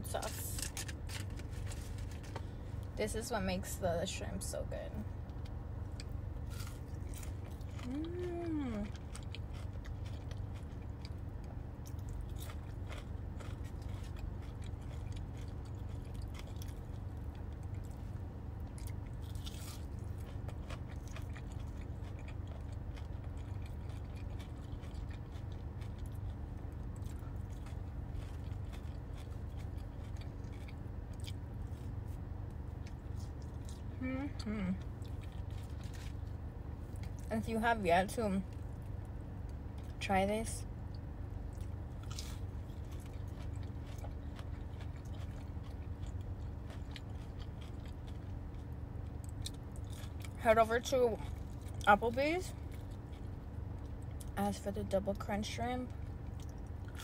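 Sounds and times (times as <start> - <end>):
chewing and crunching food: 0.0 - 3.0, 4.1 - 40.0, 40.6 - 57.0
steady low hum: 0.0 - 57.0
person humming: 7.8 - 8.8, 34.0 - 34.8.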